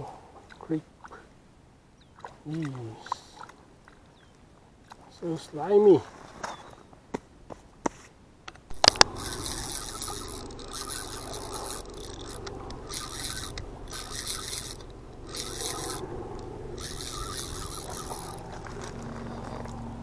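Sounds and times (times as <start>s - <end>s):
sharp clicks: 8.5s - 18.6s
fishing reel cranking whir: 8.7s - 19.8s.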